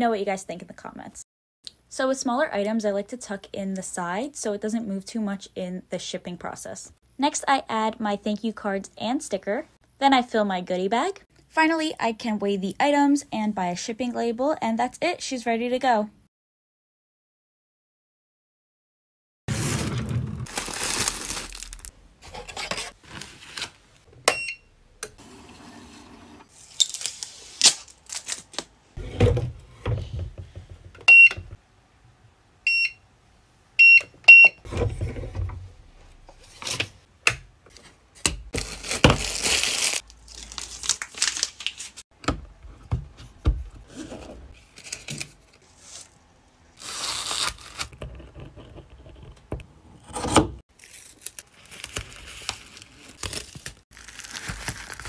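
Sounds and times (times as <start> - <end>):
plastic packaging crinkling: 19.5 - 21.9, 26.6 - 28.8, 38.6 - 42.0, 46.8 - 47.9, 50.7 - 55.0.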